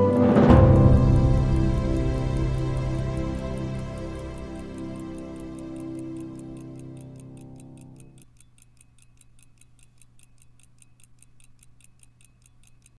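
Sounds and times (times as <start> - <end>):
background music: 0.0 - 7.5
pocket watch ticking: 0.0 - 13.0.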